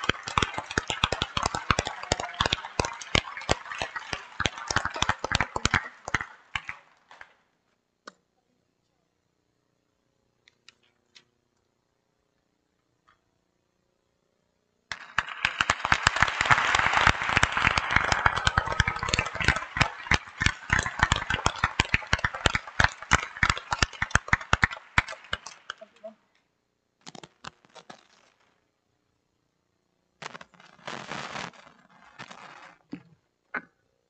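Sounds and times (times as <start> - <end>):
audience applause: 0.0 - 6.9, 14.9 - 26.0.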